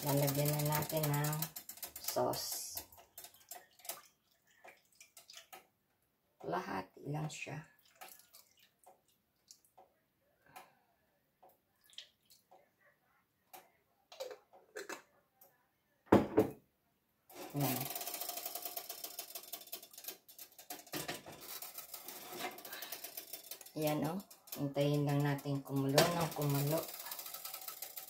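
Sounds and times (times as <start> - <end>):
saucepan rattling on burner: 0.0 - 4.0, 17.3 - 28.0.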